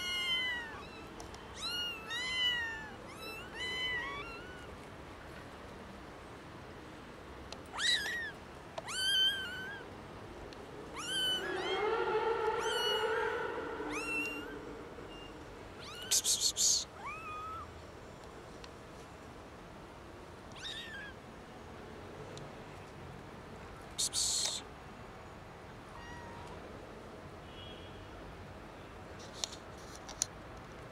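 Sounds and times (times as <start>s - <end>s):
kitten shrill squeaks: 0.0s - 4.6s, 7.8s - 9.8s, 11.0s - 11.7s, 15.1s - 17.7s, 20.6s - 21.1s
kitten drawn-out cry: 0.0s - 4.7s, 7.7s - 9.9s, 10.9s - 17.7s, 20.6s - 21.2s, 25.9s - 26.6s
kittens meowing: 0.0s - 4.7s, 7.7s - 9.9s, 10.9s - 17.7s, 20.6s - 21.1s, 25.9s - 26.6s.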